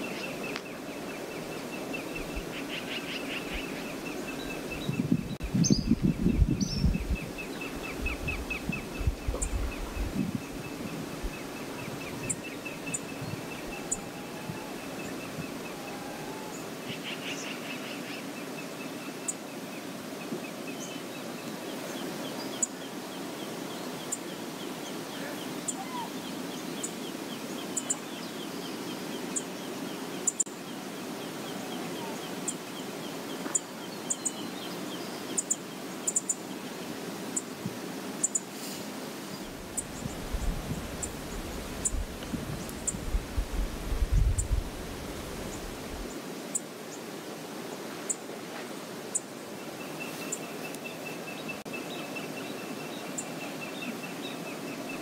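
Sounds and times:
flowing river water: 0.0 - 5.0, 7.2 - 55.0.

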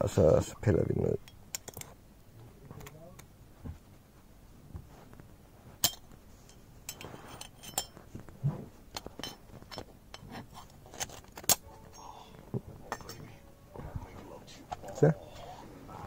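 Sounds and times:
metal valve parts clinking: 5.8 - 8.0, 9.0 - 10.3.

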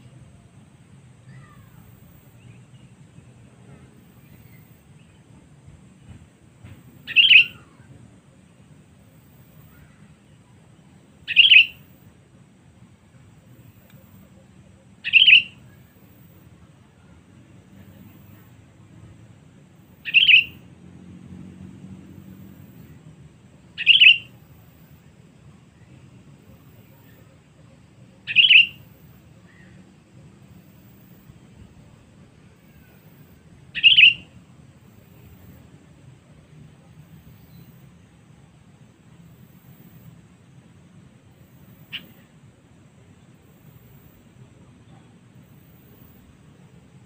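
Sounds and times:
faint bird chirps: 1.1 - 5.4, 7.0 - 8.1, 9.0 - 12.0, 13.2 - 18.6, 19.9 - 20.6, 23.8 - 35.6, 36.8 - 38.0, 41.3 - 42.4
bird call: 7.0 - 8.0, 11.3 - 11.9, 15.0 - 15.9, 20.0 - 20.6, 23.8 - 24.4, 28.1 - 29.8, 32.4 - 34.4, 41.8 - 42.2.

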